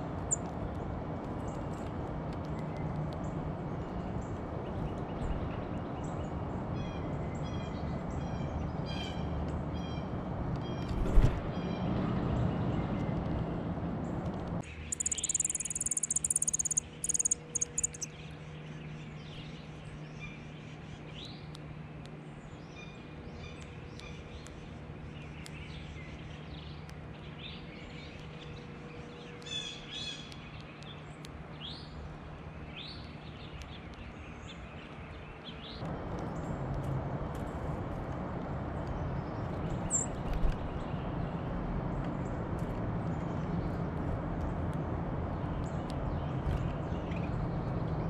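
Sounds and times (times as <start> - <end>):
songbird chip calls: 14.7 - 18.1, 39.8 - 40.1
descending chirps: 14.9 - 18.1.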